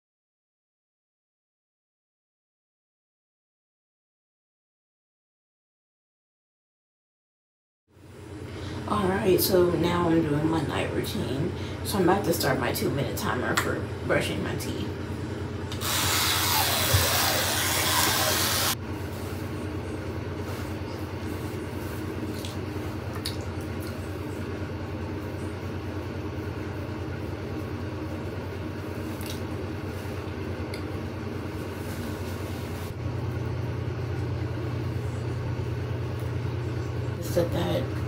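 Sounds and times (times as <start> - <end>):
electric toothbrush buzzing: 15.7 - 18.8
loud hiss: 15.8 - 18.8.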